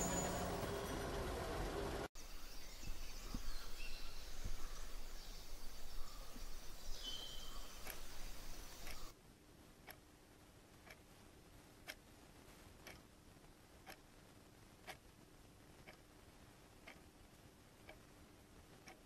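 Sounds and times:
outdoor evening ambience: 0:00.0 - 0:19.0
bird call: 0:02.5 - 0:09.1
wall clock ticking: 0:05.6 - 0:09.2, 0:10.8 - 0:11.2, 0:11.8 - 0:12.2, 0:12.8 - 0:19.0.

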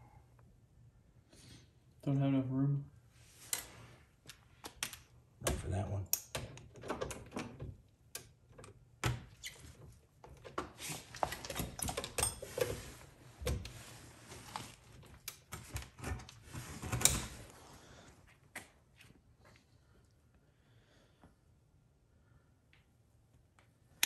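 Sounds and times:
hand tools clicking and clunking: 0:10.2 - 0:13.7.

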